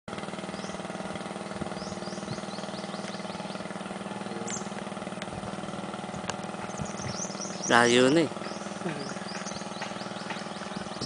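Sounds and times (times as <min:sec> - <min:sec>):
motorboat engine running: 0:00.1 - 0:11.0
bird chirping: 0:01.4 - 0:04.7, 0:06.1 - 0:11.0.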